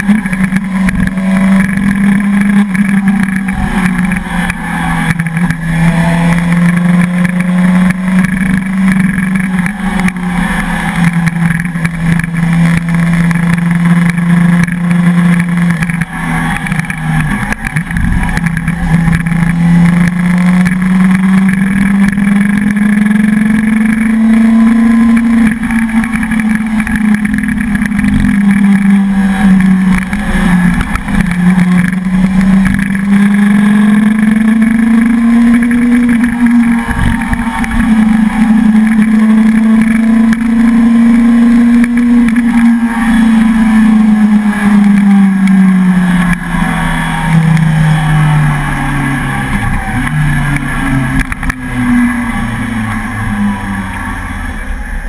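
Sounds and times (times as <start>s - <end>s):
motorcycle engine running: 0.0s - 55.0s
wind rumbling on microphone: 15.8s - 22.5s, 25.4s - 40.7s.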